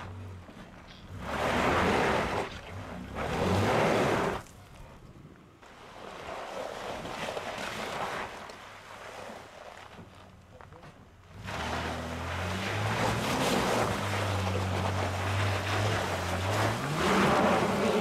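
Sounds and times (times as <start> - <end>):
engine revving: 0.0 - 4.4, 11.4 - 18.0
wheels spinning on gravel: 0.0 - 4.8, 5.8 - 18.0.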